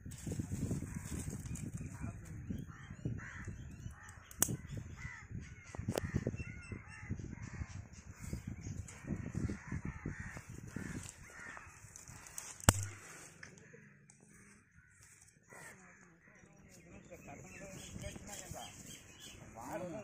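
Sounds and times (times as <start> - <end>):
dry twigs rustling and crackling: 0.0 - 2.4, 3.4 - 4.6, 8.8 - 16.0
crows cawing: 0.7 - 16.6
sharp crack: 12.2 - 13.6.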